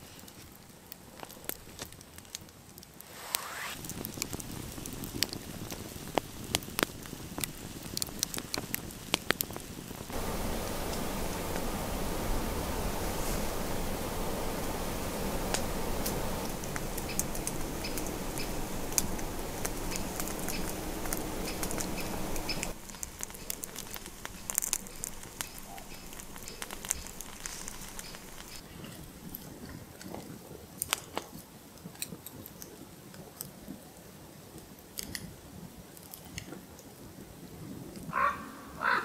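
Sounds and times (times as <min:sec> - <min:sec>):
wood fire crackling and popping: 0:00.0 - 0:33.6, 0:34.6 - 0:37.0
steady rushing noise: 0:03.0 - 0:06.4, 0:09.8 - 0:28.6.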